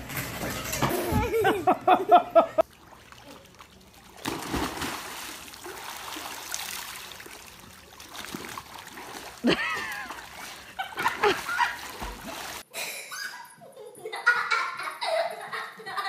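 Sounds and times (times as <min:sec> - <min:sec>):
water splashing and trickling: 0:02.6 - 0:12.7.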